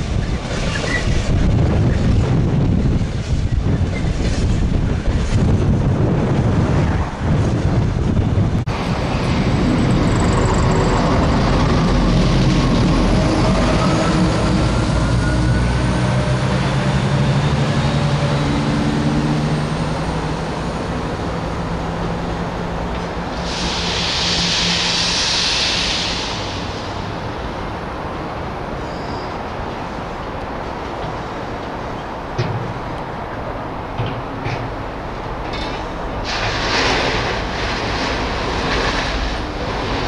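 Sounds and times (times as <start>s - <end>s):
freight wagons rumbling and clattering: 0.0s - 23.7s, 30.2s - 40.0s
diesel train engine drone: 0.0s - 40.0s.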